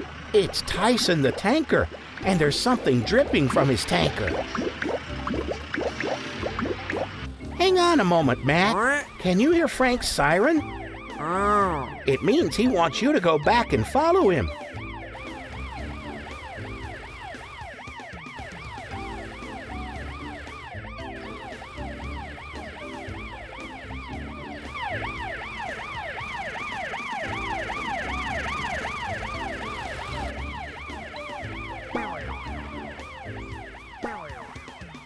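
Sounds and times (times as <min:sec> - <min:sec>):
background music with bass: 0:00.0 - 0:35.0
cartoon siren yelping: 0:07.6 - 0:35.0.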